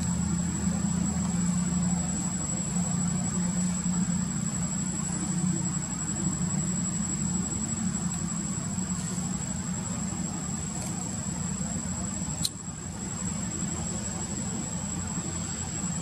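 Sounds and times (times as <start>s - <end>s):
low motor hum: 0.0s - 16.0s.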